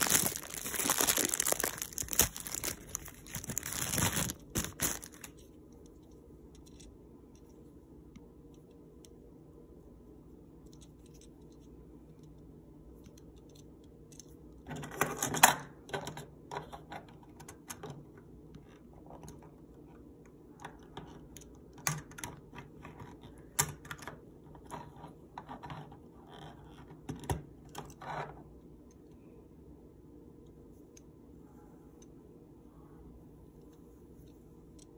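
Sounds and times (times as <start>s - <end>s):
plastic crinkling: 0.0s - 5.4s
small plastic rattles: 0.0s - 5.4s.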